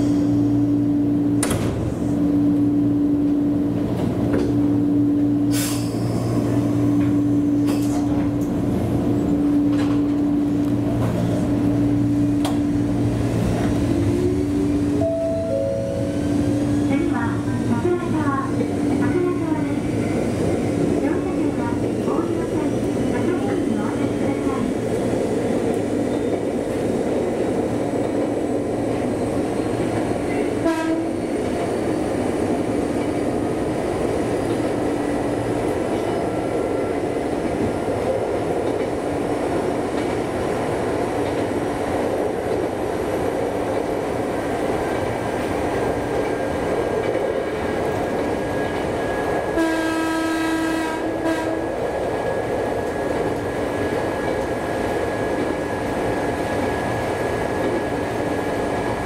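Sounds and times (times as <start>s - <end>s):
train wheel and running noise: 0.0s - 59.0s
brief tone: 15.0s - 16.2s
train horn: 30.6s - 31.2s, 49.6s - 51.8s.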